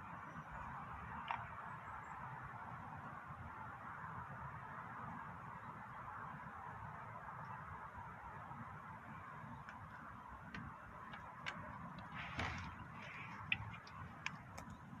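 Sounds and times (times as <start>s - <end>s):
brief rustle: 12.0s - 14.7s.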